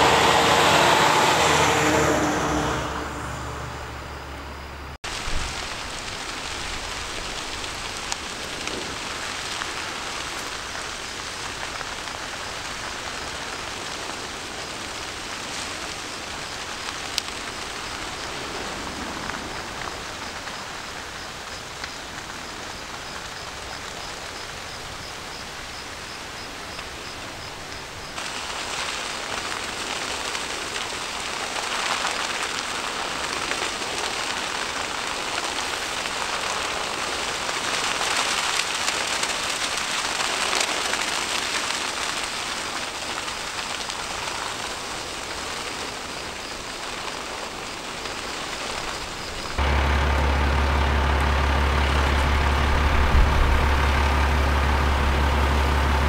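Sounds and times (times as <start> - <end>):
sharp pops of burning: 5.0 - 25.8
brush fire crackling: 5.0 - 56.0.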